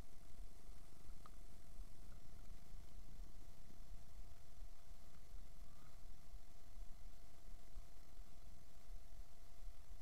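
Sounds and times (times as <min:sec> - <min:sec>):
thin steady tone: 0:00.0 - 0:10.0.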